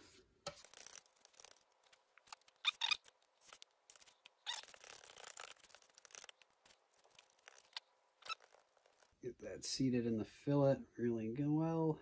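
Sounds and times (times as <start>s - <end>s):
brush scrubbing wet epoxy: 0.5s - 9.2s.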